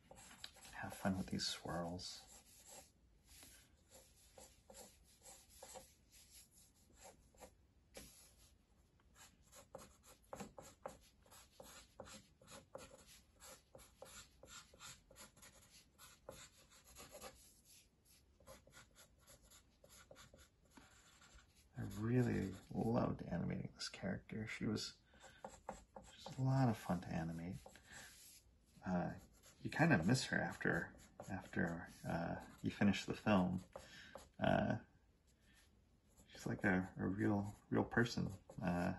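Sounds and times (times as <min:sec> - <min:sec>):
pencil scratching on paper: 0:00.0 - 0:08.5, 0:09.1 - 0:23.0, 0:25.1 - 0:28.4, 0:29.2 - 0:34.5.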